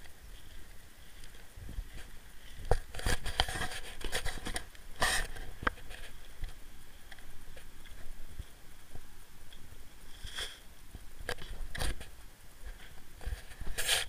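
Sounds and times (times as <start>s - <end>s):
camera handling rustle: 0.4s - 8.1s
sharp clicks and scrapes: 0.6s - 8.1s, 9.5s - 10.6s, 11.2s - 14.0s.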